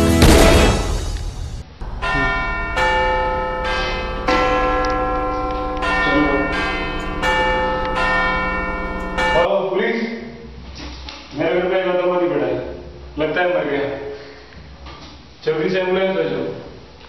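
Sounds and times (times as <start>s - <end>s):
phone ringing with bell ringtone: 1.8s - 9.5s.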